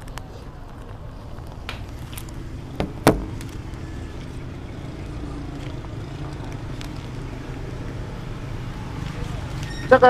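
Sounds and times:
road traffic rumble: 0:00.0 - 0:10.0
sharp knocks: 0:02.8 - 0:03.5.

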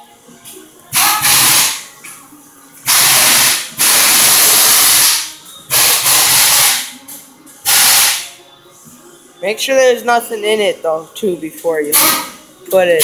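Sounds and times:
bursts of hissing air: 0:01.0 - 0:01.8, 0:02.9 - 0:06.9, 0:07.7 - 0:08.3.

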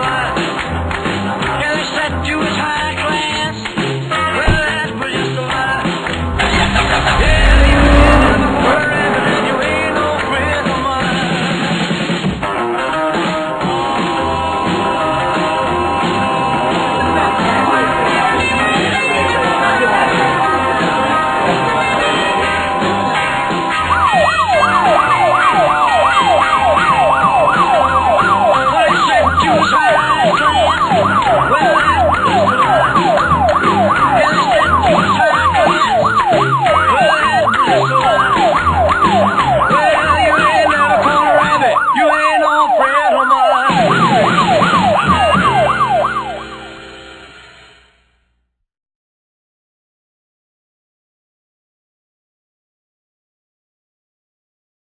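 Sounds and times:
rock and roll music: 0:00.0 - 0:47.7
siren rising sweeps: 0:06.3 - 0:10.3, 0:23.8 - 0:48.0.

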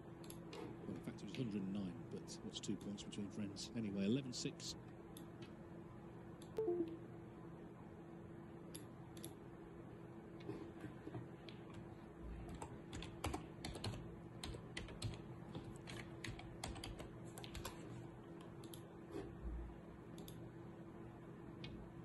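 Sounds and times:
faint steady hum: 0:00.0 - 0:22.0
computer keyboard typing: 0:12.4 - 0:17.8.

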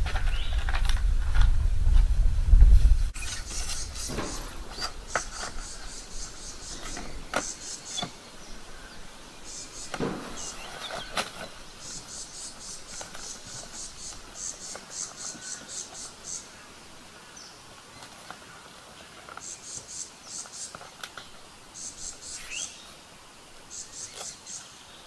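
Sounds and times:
low rumble: 0:00.0 - 0:03.2
insects chirping: 0:03.1 - 0:25.0
wooden board knocking and scraping: 0:03.2 - 0:08.2, 0:09.8 - 0:12.2.

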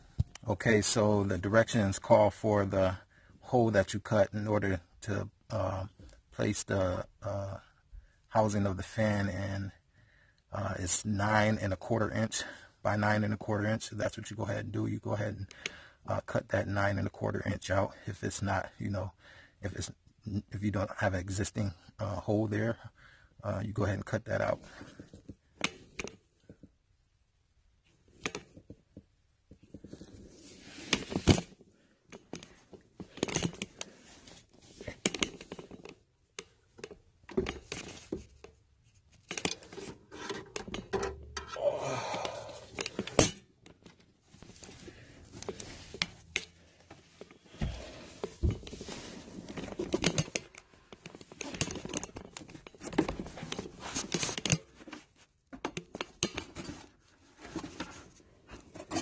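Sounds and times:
objects clicking and knocking: 0:42.2 - 0:54.6
phone handling noise: 0:42.5 - 0:54.8.

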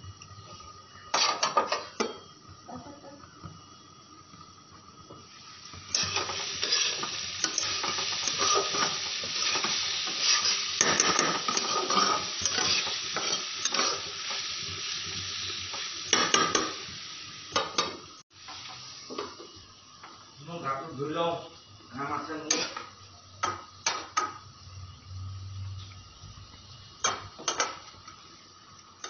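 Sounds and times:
potatoes sizzling in hot oil: 0:00.0 - 0:29.0
metal spatula scraping pan: 0:05.9 - 0:14.1.

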